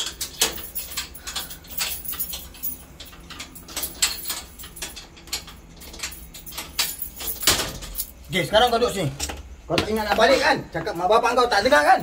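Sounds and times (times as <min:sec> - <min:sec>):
keys rattling in gate lock: 0:00.0 - 0:09.5.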